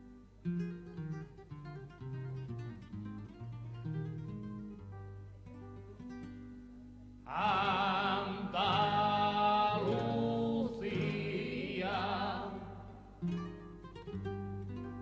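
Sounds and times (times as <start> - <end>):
acoustic guitar: 0.0 - 15.0
men singing in harmony: 7.3 - 13.1.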